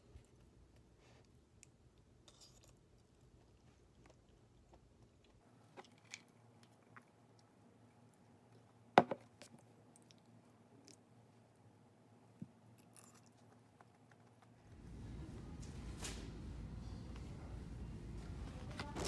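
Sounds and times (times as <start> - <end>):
soft chewing: 0.0 - 15.6.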